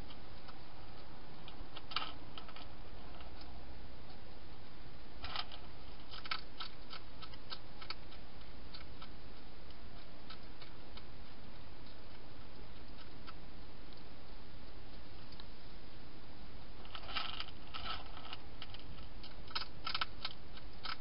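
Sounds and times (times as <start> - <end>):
hedgehog crunching dry food: 0.0 - 4.2, 5.2 - 15.5, 16.8 - 21.0
steady low hiss: 0.0 - 21.0.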